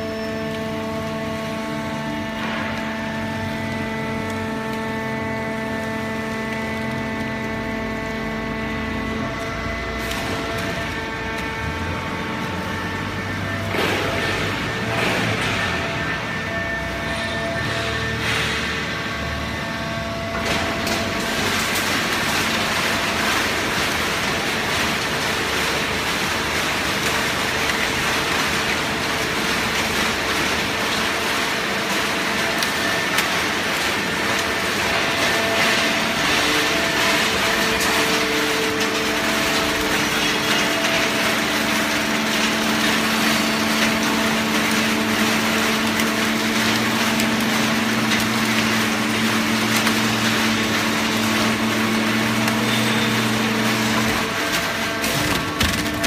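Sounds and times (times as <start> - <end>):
hydraulic baler running: 0.0 - 56.0.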